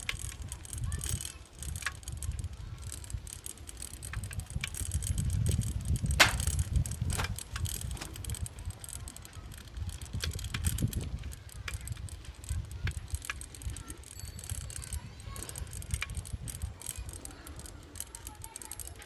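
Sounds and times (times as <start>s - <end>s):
bicycle rattling and clicking: 0.0s - 19.0s
wind on microphone: 4.0s - 17.1s.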